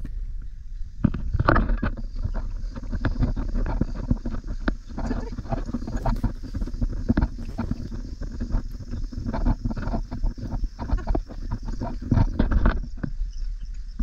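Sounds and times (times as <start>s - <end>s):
wind rumble on microphone: 0.0s - 14.0s
footsteps on stone steps: 2.2s - 12.5s.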